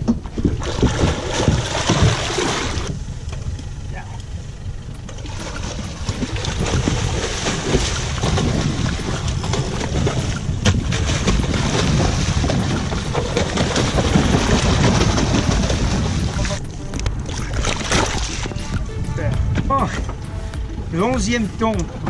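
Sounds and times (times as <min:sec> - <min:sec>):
wind buffeting microphone: 0:00.0 - 0:22.0
fish thrashing in water: 0:00.2 - 0:02.9, 0:05.0 - 0:16.6, 0:17.2 - 0:18.6.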